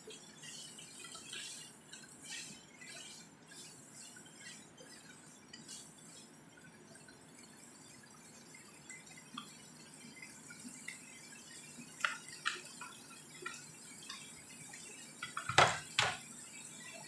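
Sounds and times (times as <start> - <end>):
chicken crackling in hot oil: 5.4 - 17.0
kitchenware clacks: 15.2 - 16.2.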